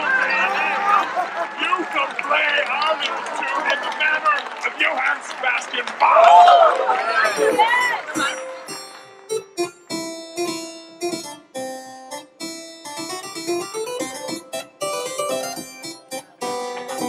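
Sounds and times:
harpsichord plucked notes: 7.2s - 17.0s.

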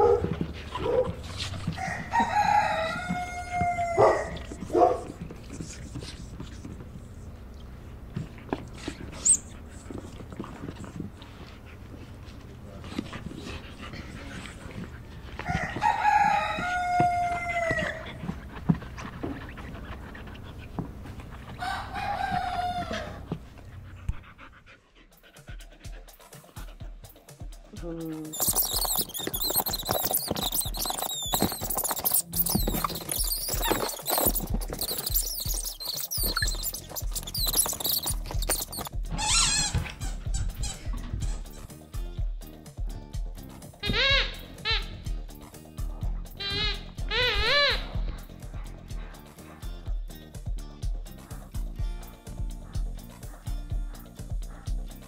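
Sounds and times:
background music with beat: 25.1s - 28.6s, 40.2s - 55.0s
squeaky toy squawk: 28.3s - 41.6s, 43.8s - 45.1s, 46.4s - 48.0s.

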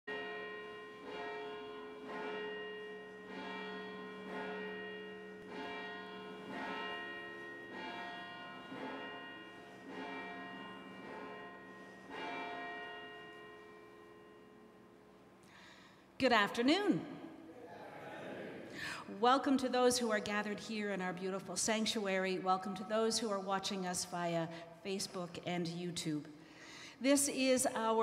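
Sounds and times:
church bells ringing: 0.1s - 17.4s.

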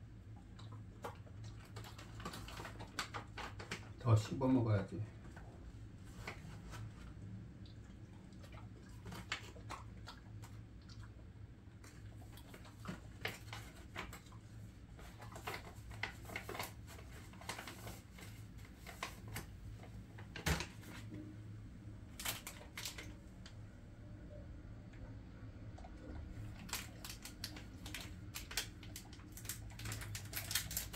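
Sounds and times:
dog chewing a treat: 7.7s - 14.4s.

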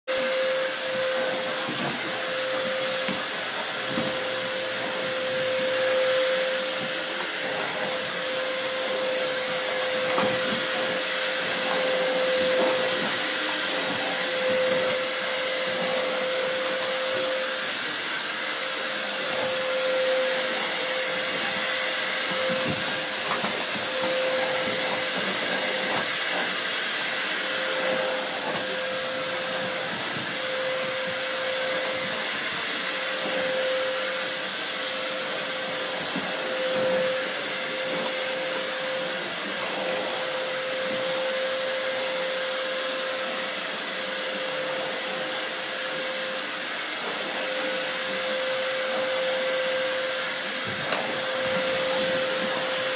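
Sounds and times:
vacuum cleaner running: 0.0s - 52.9s.

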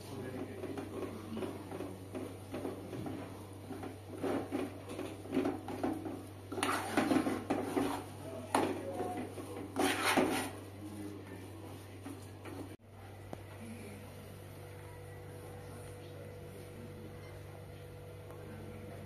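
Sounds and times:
steady low hum: 0.0s - 19.0s
metal spoon scraping a pot: 6.5s - 10.6s.

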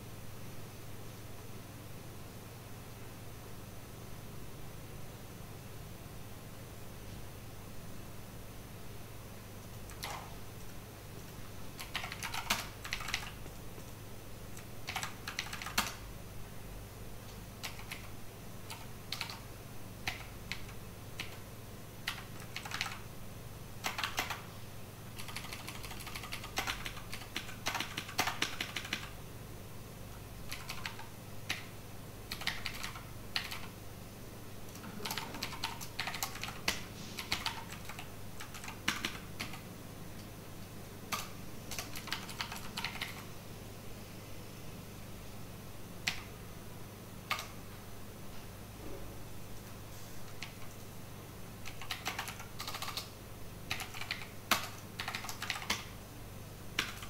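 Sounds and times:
steady low hum: 0.0s - 57.0s
keyboard keystroke clicks: 9.7s - 10.3s.

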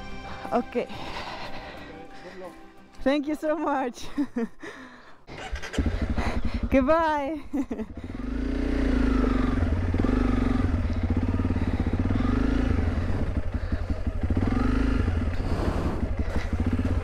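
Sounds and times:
motorcycle engine running: 5.3s - 17.0s
clatter: 16.2s - 17.0s.

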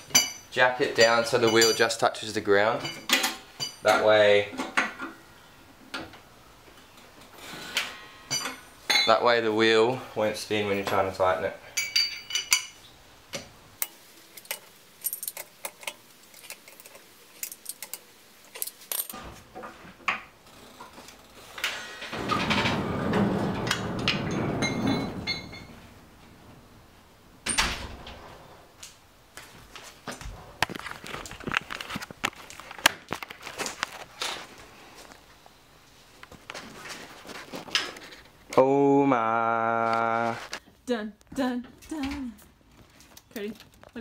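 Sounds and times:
lug wrench clinking on wheel nuts: 11.8s - 12.8s.

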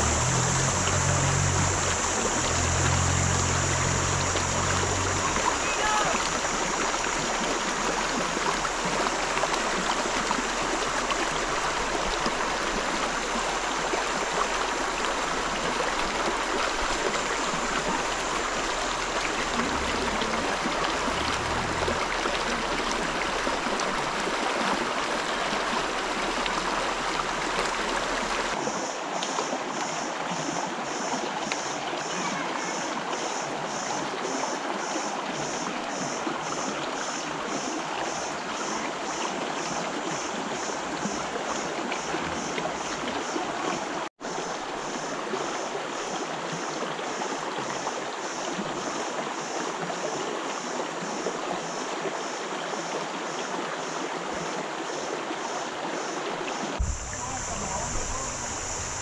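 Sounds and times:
high pulsing tone: 0.0s - 8.7s
river water rushing over rocks: 0.0s - 31.3s.

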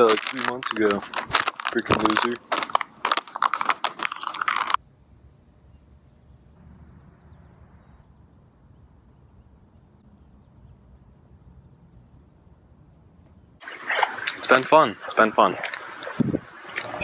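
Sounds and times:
person speaking: 0.0s - 2.7s, 14.3s - 15.8s
plastic bag crinkling: 0.0s - 4.8s.

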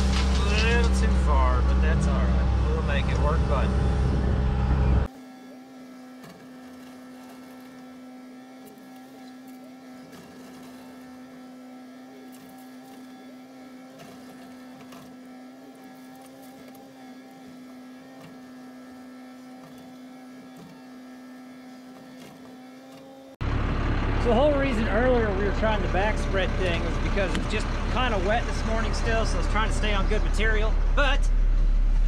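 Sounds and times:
small motor humming: 0.0s - 30.6s.

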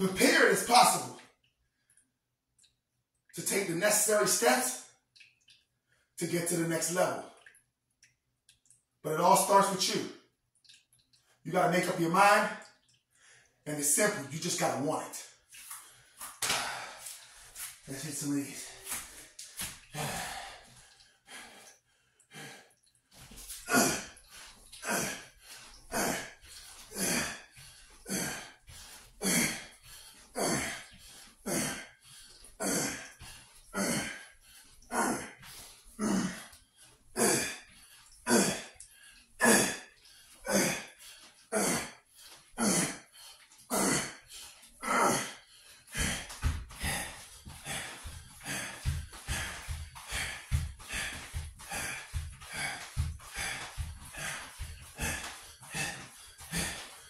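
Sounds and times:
man breathing forcefully: 15.7s - 17.8s, 18.6s - 57.0s.

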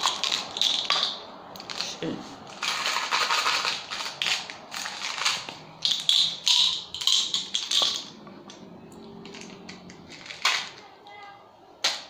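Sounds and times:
plastic containers tapping and rattling: 0.0s - 8.6s.

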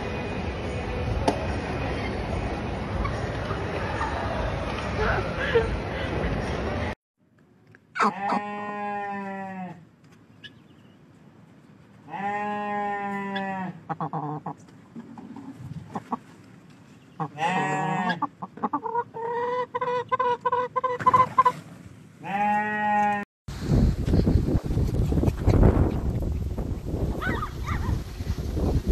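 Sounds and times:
chicken churring cluck: 13.9s - 14.6s, 18.1s - 21.6s
chickens calling: 13.9s - 16.3s, 17.1s - 21.6s.

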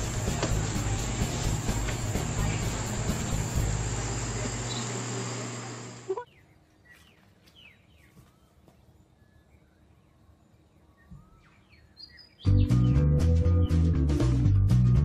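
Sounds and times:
loud hiss with low hum: 0.0s - 6.2s
faint bird chirps: 6.1s - 12.7s.

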